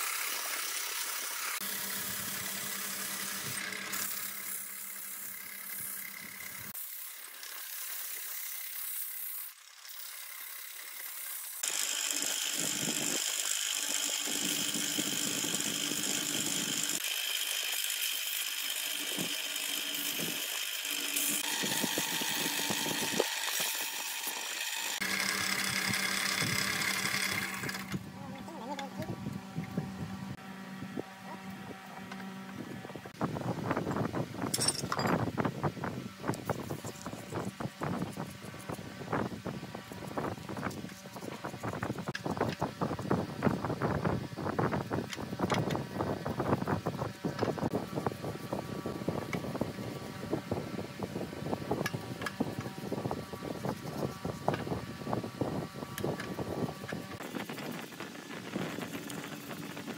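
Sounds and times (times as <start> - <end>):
hollowing tool scraping wood: 0.0 - 30.4
sandpaper rubbing wood: 3.2 - 29.3, 36.3 - 42.9, 52.4 - 54.8
lathe motor hum: 11.6 - 33.2.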